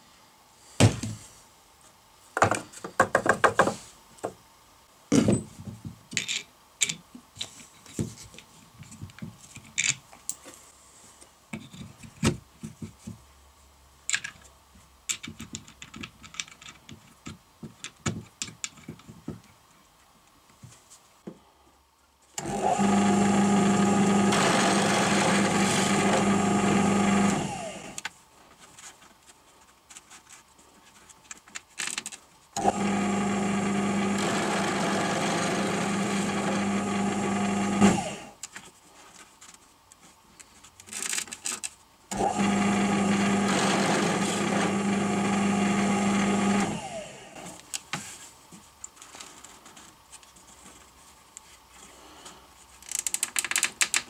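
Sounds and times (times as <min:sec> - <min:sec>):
wooden parts clicking and knocking: 0:02.4 - 0:04.4, 0:15.1 - 0:19.6, 0:31.2 - 0:32.2, 0:52.8 - 0:54.0
drill press humming: 0:22.4 - 0:28.0, 0:32.6 - 0:38.4, 0:42.1 - 0:47.6.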